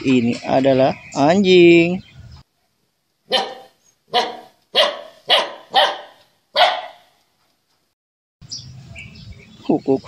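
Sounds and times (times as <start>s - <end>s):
puppy barking: 3.3s - 7.1s.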